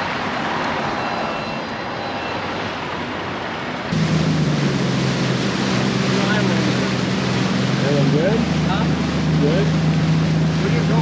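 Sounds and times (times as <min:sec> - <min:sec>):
wind and water rushing: 0:00.0 - 0:11.0
steady rushing noise: 0:02.3 - 0:11.0
outboard motor running: 0:03.9 - 0:11.0.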